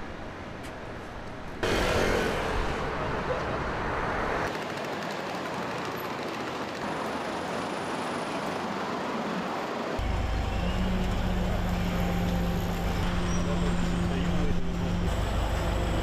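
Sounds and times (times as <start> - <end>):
city street traffic: 0.0 - 16.0
low engine hum: 10.0 - 16.0.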